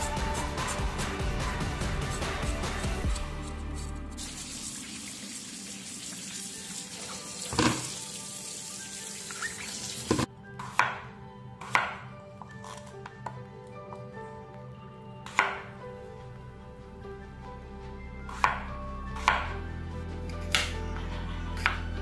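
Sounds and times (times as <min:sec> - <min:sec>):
tap water running into bowl: 0:04.8 - 0:10.3
knife chopping on wooden board: 0:10.1 - 0:11.0.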